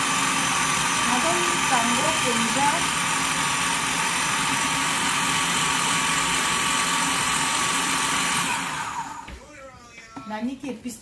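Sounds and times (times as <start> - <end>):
food processor running: 0.0 - 9.4.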